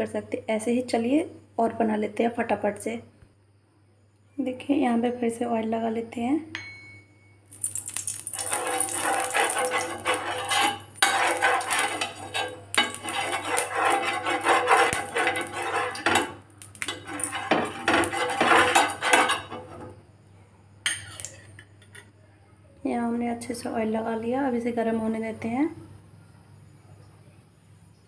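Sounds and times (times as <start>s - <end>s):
utensil scraping a pan: 8.1s - 20.0s.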